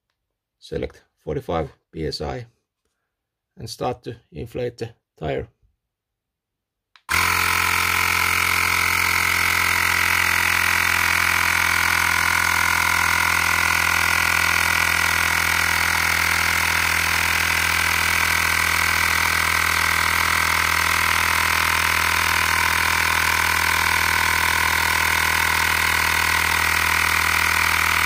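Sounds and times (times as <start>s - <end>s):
electric air compressor running: 7.1s - 28.0s.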